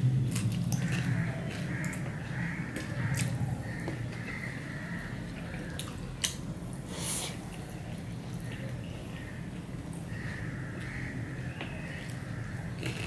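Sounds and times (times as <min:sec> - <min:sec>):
chewing with mouth clicks: 0:00.2 - 0:04.2, 0:12.0 - 0:13.0.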